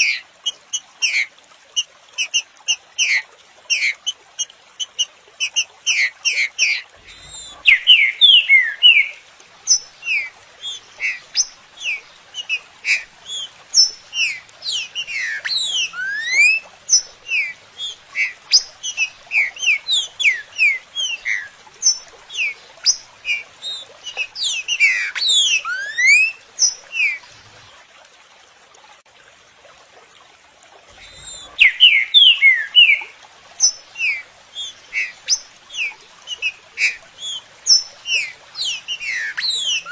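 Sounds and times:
bird song whistled notes: 0:07.0 - 0:27.2, 0:31.0 - 0:39.9.

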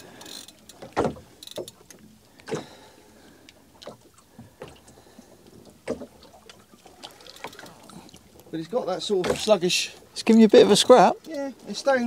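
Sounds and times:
water slapping against boat hull: 0:00.0 - 0:02.9, 0:03.8 - 0:12.0.

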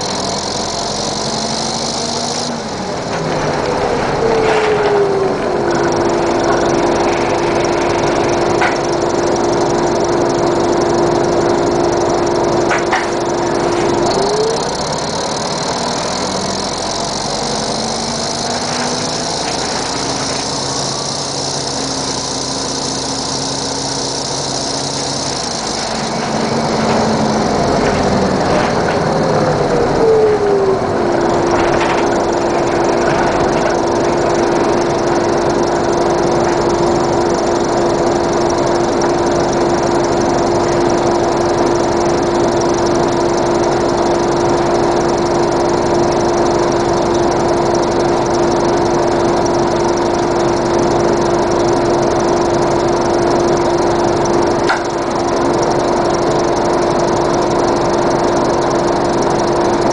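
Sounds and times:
diesel bus engine idling: 0:00.0 - 0:59.9
steady whine: 0:00.0 - 0:59.9
hiss: 0:14.1 - 0:26.6.

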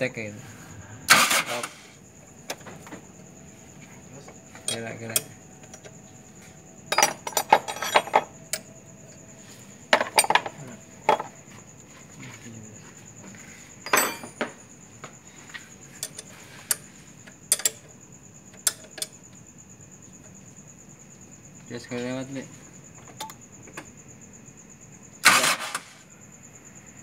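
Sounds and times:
metal tools clinking on metal: 0:04.5 - 0:06.0, 0:06.9 - 0:08.7, 0:09.9 - 0:11.3, 0:13.8 - 0:14.6, 0:15.9 - 0:16.9.

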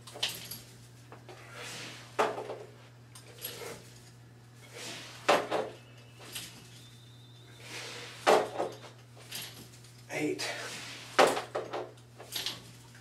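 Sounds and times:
low hum: 0:03.0 - 0:11.2
man breathing during exercise: 0:07.5 - 0:08.6.

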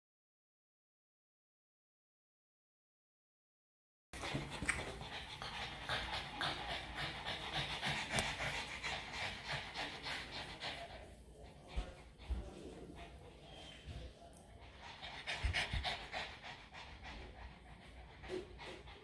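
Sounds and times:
dogs panting rapidly: 0:04.2 - 0:19.0.

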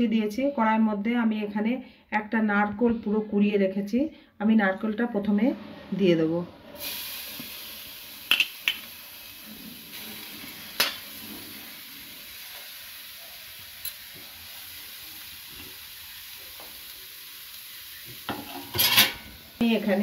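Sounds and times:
faint hiss: 0:06.7 - 0:18.6.

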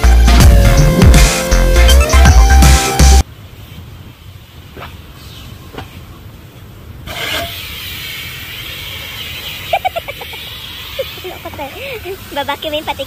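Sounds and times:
low rumble: 0:00.0 - 0:03.2
vacuum hose hissing: 0:07.0 - 0:13.0.

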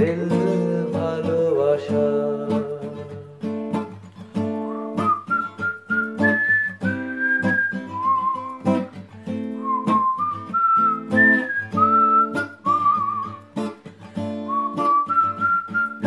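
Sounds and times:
acoustic guitar strumming: 0:00.0 - 0:16.0
person whistling: 0:04.4 - 0:16.0.

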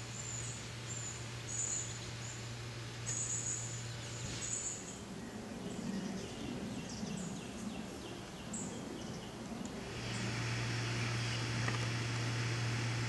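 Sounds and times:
small bird chirping: 0:00.0 - 0:10.2.

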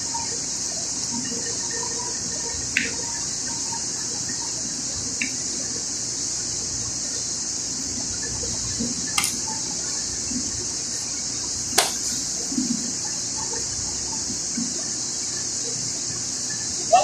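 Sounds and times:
high-pitched hiss: 0:00.0 - 0:17.0
sharp clicks: 0:09.2 - 0:09.4, 0:11.8 - 0:12.1.

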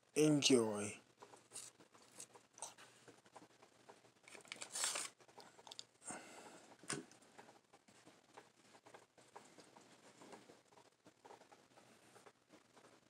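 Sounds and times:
quiet rustling and clicks: 0:01.0 - 0:06.0, 0:06.6 - 0:13.0
crinkling rustle: 0:01.2 - 0:06.0.

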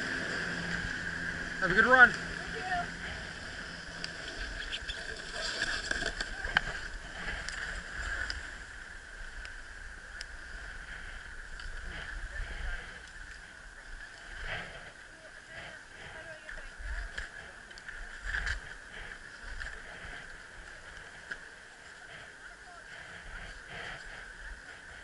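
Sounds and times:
steady high hum: 0:00.0 - 0:25.0
skis scraping over snow: 0:01.6 - 0:09.3.

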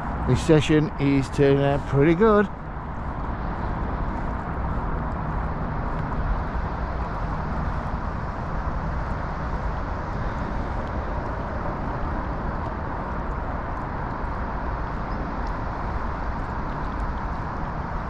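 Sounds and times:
outdoor low rumble: 0:00.0 - 0:18.0.

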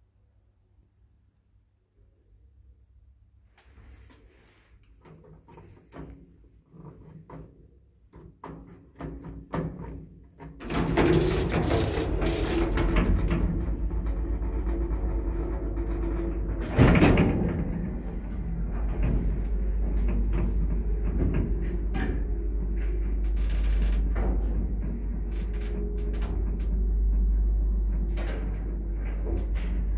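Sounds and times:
lift humming and rumbling: 0:10.6 - 0:29.9
loud clatter: 0:10.6 - 0:29.9.

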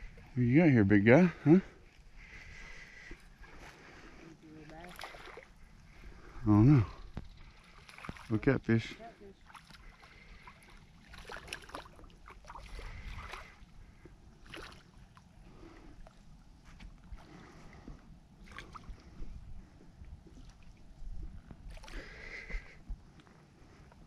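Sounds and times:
fish splashing in water: 0:04.8 - 0:05.6, 0:07.4 - 0:08.4, 0:09.4 - 0:13.7, 0:14.4 - 0:15.2
steady low rumble: 0:11.9 - 0:24.0.

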